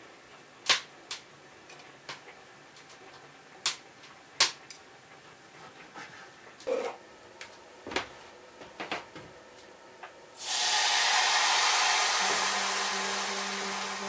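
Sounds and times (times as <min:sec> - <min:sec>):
steam hissing from a pot: 0:10.4 - 0:14.0.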